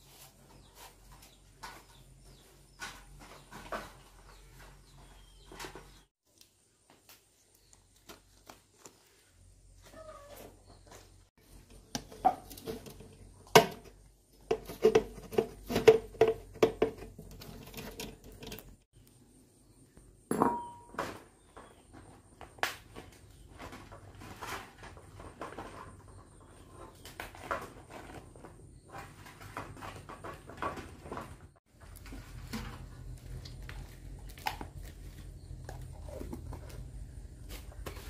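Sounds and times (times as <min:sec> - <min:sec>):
dishes clinking: 0:20.3 - 0:21.1.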